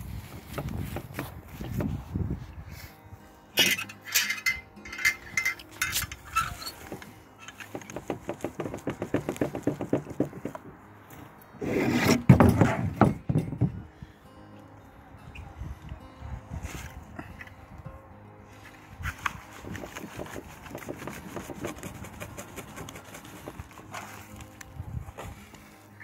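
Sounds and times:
hands packing soil in tub: 6.0s - 10.7s, 18.5s - 26.0s
rubbing and knocking: 6.4s - 10.6s, 19.6s - 24.2s.

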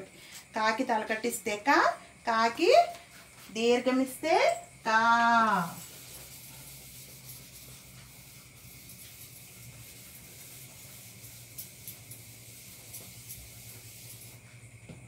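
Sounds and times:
low hum and hiss: 0.0s - 15.0s
eraser wiping whiteboard: 5.5s - 14.6s.

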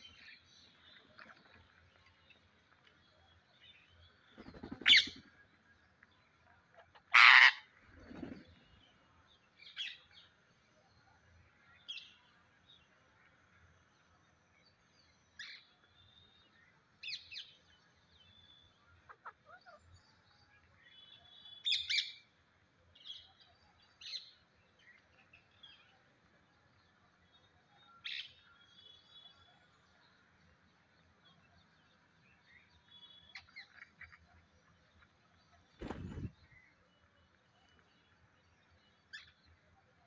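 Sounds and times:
parakeets calling: 7.1s - 7.6s.

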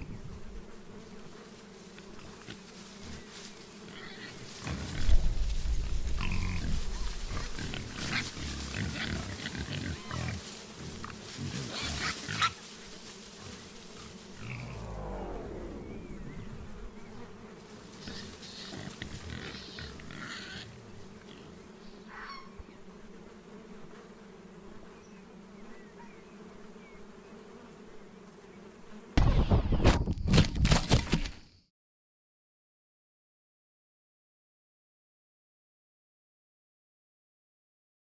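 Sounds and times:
drone propellers buzzing: 4.6s - 12.2s, 13.4s - 19.3s.

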